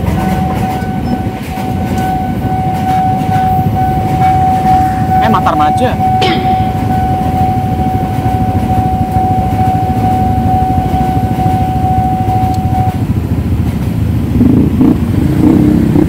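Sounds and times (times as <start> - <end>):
level-crossing warning tone: 0.0 - 13.5
motorcycles idling: 0.0 - 16.0
passing train rumble: 0.0 - 16.0.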